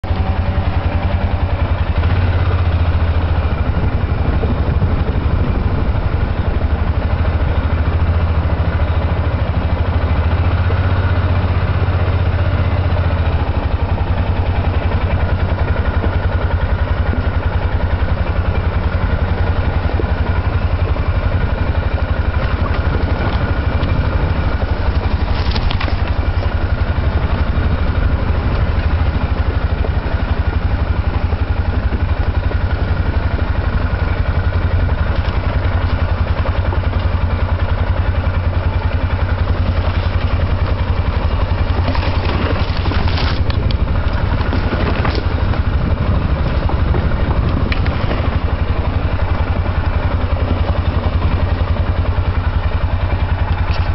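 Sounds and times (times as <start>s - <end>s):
atv engine running: 0.0s - 53.9s.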